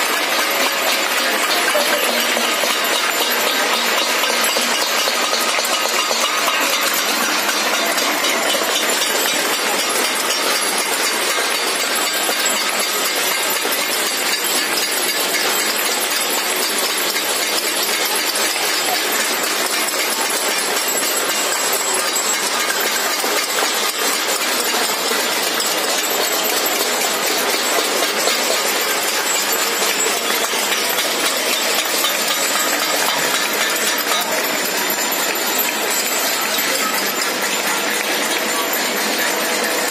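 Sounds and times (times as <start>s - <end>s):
crowd clapping: 0.0s - 39.9s.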